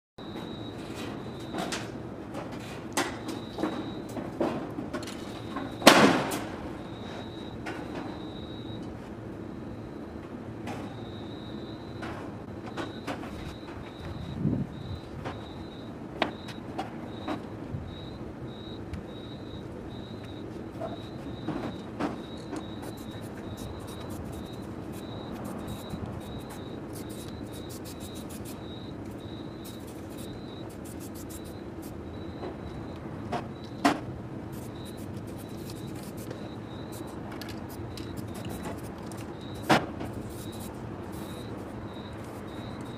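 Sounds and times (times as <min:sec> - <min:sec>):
cricket chirping: 0:00.2 - 0:01.8, 0:03.0 - 0:04.2, 0:05.2 - 0:10.2, 0:10.8 - 0:42.9
faint high whine: 0:06.8 - 0:42.9
steady low hum: 0:13.4 - 0:42.9.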